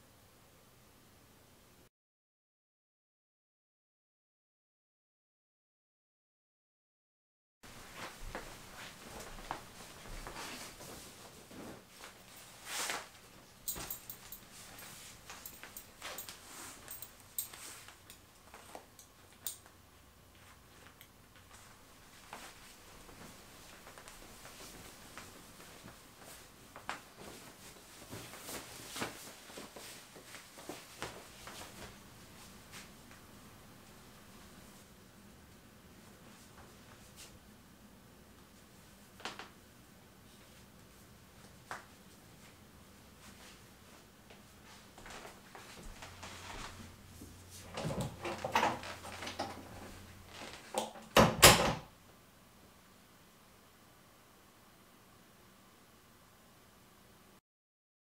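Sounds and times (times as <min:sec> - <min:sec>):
soft shuffling movement: 0:07.7 - 0:19.0, 0:20.3 - 0:33.2, 0:40.2 - 0:47.8
shirt rustling: 0:21.5 - 0:32.9
door shutting thud: 0:51.1 - 0:51.9.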